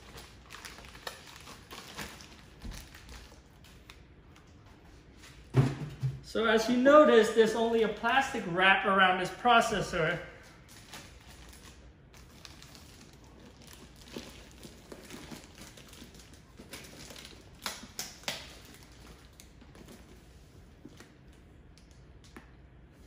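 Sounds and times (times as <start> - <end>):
plastic wrap crinkling: 0.0 - 4.6, 10.4 - 22.4.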